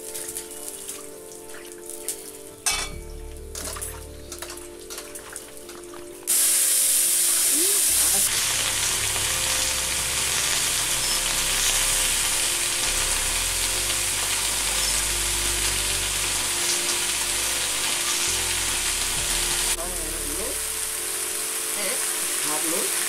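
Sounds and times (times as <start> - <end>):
vegetables sizzling in hot oil: 2.0 - 23.0.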